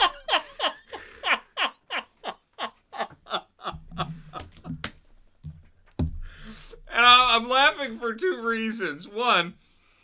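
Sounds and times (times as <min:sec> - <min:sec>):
man laughing: 0:00.0 - 0:04.8.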